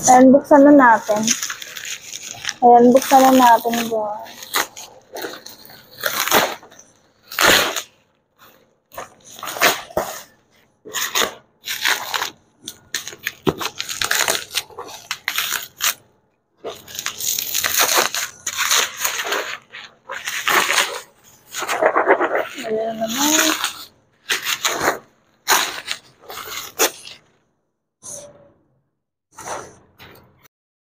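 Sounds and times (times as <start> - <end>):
bubble wrap crinkling: 0.6 - 16.0, 16.6 - 27.3
cardboard flaps scraping: 16.6 - 27.2.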